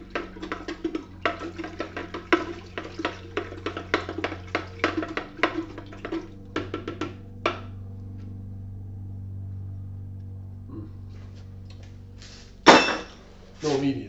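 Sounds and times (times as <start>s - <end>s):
stirring rod tapping plastic pitcher: 0.0s - 7.7s
steady low hum: 0.0s - 14.0s
metal clank on steel bench: 12.7s - 13.2s.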